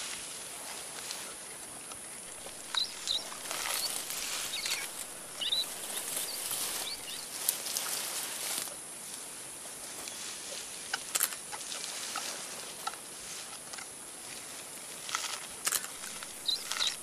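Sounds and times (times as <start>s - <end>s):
vegetation rustling and crackling: 0.0s - 17.0s
high bird chirps: 2.3s - 7.4s, 16.0s - 17.0s.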